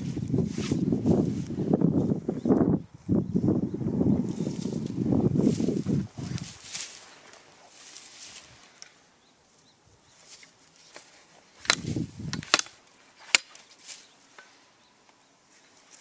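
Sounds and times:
rustling: 4.3s - 16.0s.

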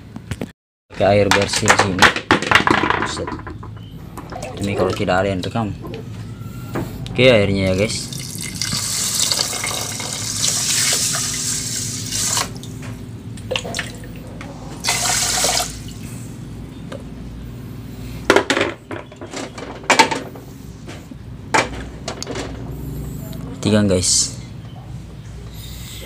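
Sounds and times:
water pouring into a pot: 8.1s - 12.5s, 14.8s - 15.9s.

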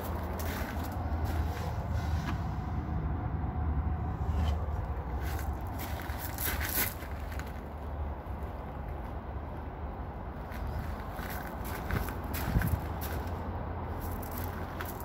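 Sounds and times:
footsteps on gravel: 0.0s - 1.8s, 5.1s - 7.7s, 10.5s - 13.4s, 14.0s - 15.0s
low rumble: 0.0s - 8.2s.

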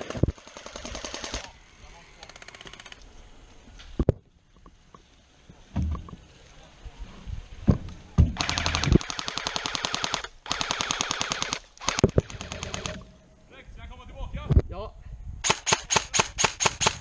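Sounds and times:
airsoft rifle full-auto bursts: 0.0s - 1.5s, 8.4s - 13.1s, 15.4s - 17.0s.

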